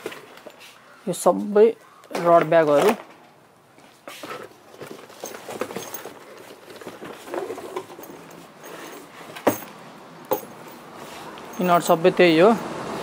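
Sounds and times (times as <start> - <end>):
rod bag rustling and scraping: 4.1 - 9.7.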